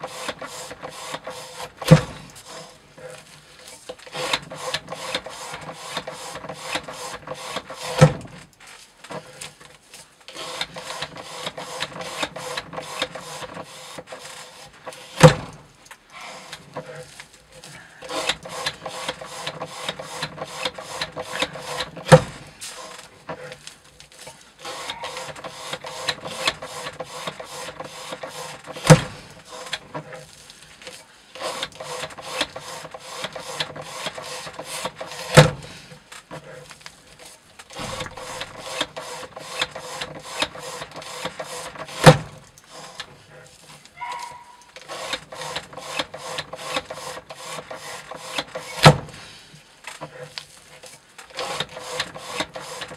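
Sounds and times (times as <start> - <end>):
knife rasping through rope: 0.0 - 8.3, 10.3 - 15.3, 16.2 - 52.9
loud knock: 37.8 - 38.6.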